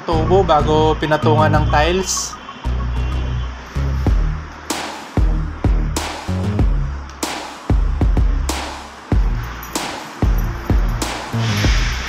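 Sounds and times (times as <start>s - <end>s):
electronic music with beat: 0.0s - 12.0s
sharp snare hit: 4.7s - 5.3s, 6.0s - 6.4s, 7.2s - 7.7s, 8.5s - 9.0s.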